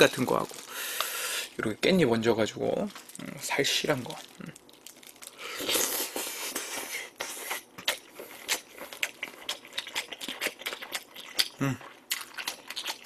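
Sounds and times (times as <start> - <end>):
wet chewing and lip-smacking: 6.5 - 13.0.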